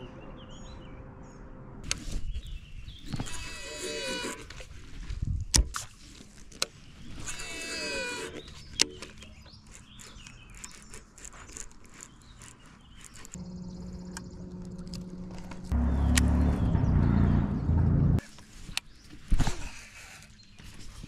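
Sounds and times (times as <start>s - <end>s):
sharp clicks: 8.3s - 16.3s
steady low drone: 13.4s - 18.2s.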